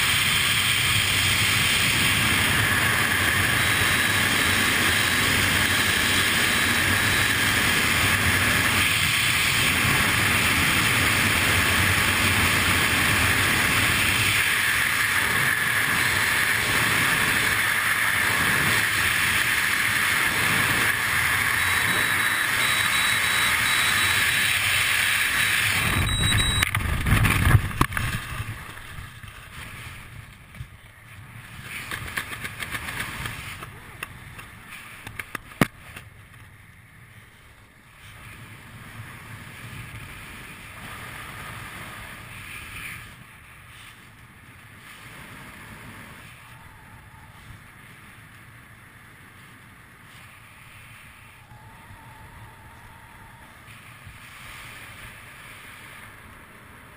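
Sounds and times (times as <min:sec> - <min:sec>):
loud wind buffeting: 0:00.0 - 0:33.9
wind rushing over microphone: 0:00.0 - 0:35.4.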